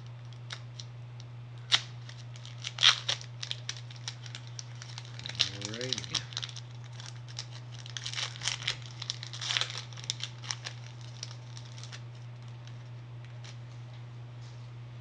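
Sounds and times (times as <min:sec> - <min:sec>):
steady low hum: 0:00.0 - 0:15.0
crinkly wrapper tearing and crackling: 0:00.2 - 0:00.9, 0:01.6 - 0:13.6.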